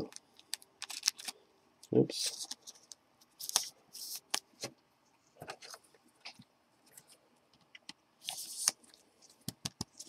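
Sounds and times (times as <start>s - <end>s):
plastic sleeve crinkling: 0.0s - 1.4s.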